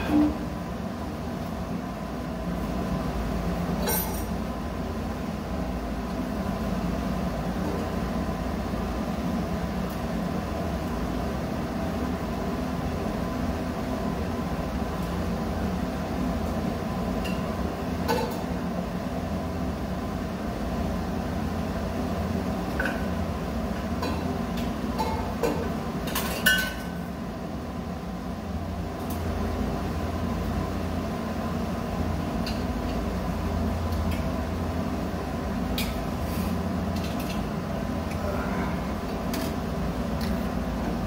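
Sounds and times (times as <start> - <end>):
machinery humming: 0.0 - 26.1.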